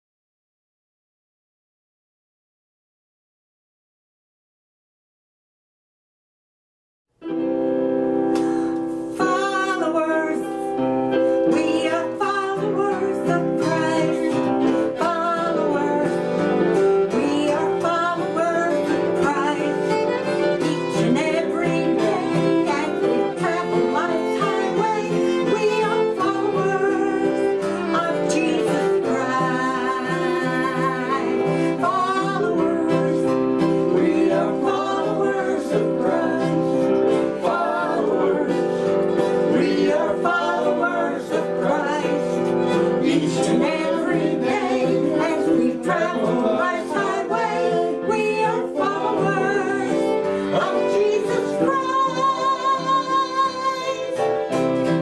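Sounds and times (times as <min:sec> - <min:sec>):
acoustic guitar: 0:07.2 - 0:55.0
keyboard playing: 0:07.2 - 0:55.0
fiddle: 0:09.1 - 0:55.0
woman singing: 0:09.2 - 0:10.8, 0:11.4 - 0:36.8, 0:39.5 - 0:42.3, 0:43.0 - 0:54.4.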